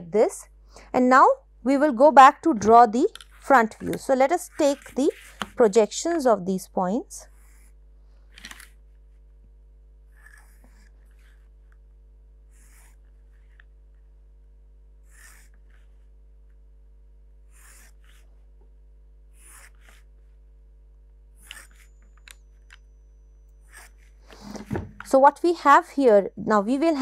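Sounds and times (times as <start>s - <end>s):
low steady hum: 0.0s - 27.0s
pencil strokes on paper: 3.4s - 6.3s, 19.4s - 20.2s.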